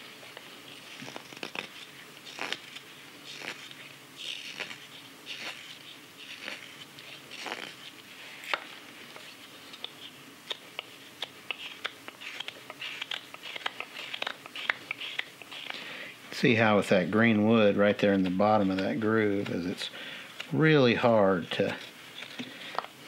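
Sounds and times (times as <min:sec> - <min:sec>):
knife carving wet wood: 0:00.8 - 0:08.6, 0:09.8 - 0:15.8.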